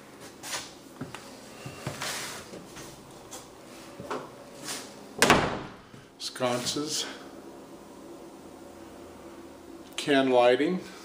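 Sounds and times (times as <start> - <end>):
footsteps on hardwood floor: 1.0 - 4.8.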